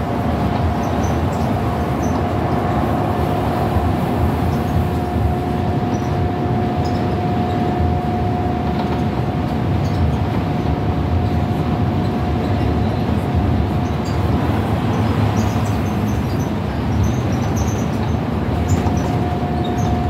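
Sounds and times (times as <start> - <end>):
steady whine: 0.0 - 17.3, 17.9 - 20.0
bus diesel engine droning: 0.0 - 20.0
road and tyre rumble: 0.0 - 20.0.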